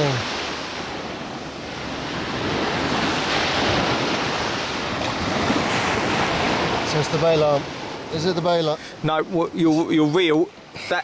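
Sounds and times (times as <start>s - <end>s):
wind on microphone: 0.0s - 8.1s
surf washing onto beach: 0.0s - 11.0s.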